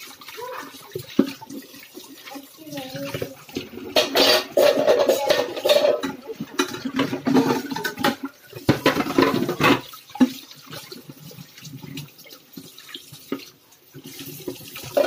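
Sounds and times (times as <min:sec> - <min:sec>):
tap water running into sink: 0:00.0 - 0:15.0
dishes clinking and knocking: 0:03.1 - 0:10.0.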